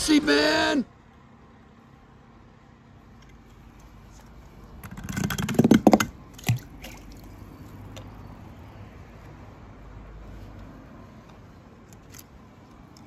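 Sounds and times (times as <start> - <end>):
toy car clattering down ramp: 4.8 - 6.1
toy car plopping into water: 4.9 - 8.2.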